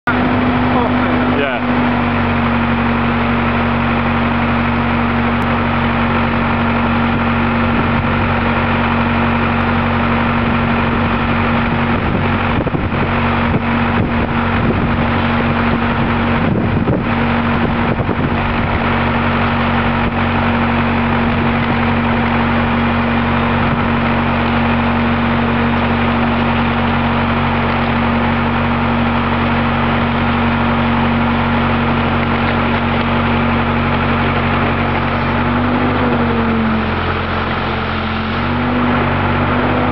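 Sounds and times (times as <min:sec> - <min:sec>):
machinery droning: 0:00.0 - 0:39.9.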